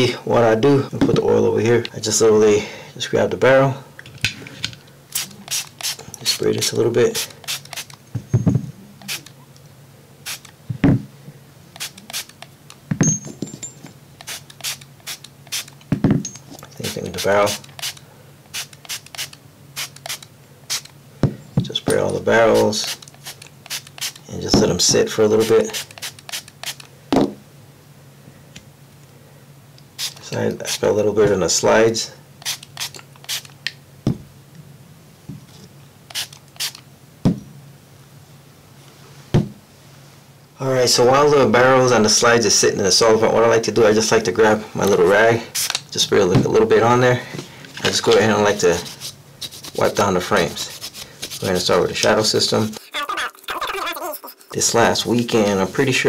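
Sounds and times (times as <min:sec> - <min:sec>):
spray bottle squirts: 0:05.1 - 0:06.4, 0:07.2 - 0:08.0, 0:09.0 - 0:09.3, 0:10.3 - 0:10.5, 0:11.8 - 0:12.6, 0:14.2 - 0:15.8, 0:16.9 - 0:20.9, 0:22.6 - 0:24.2, 0:25.7 - 0:26.9, 0:30.0 - 0:30.8, 0:32.4 - 0:33.6, 0:36.1 - 0:36.8, 0:45.6 - 0:45.8
object set down with thump: 0:08.2 - 0:08.7, 0:15.9 - 0:16.5, 0:27.1 - 0:27.4, 0:34.0 - 0:34.3, 0:39.3 - 0:39.6.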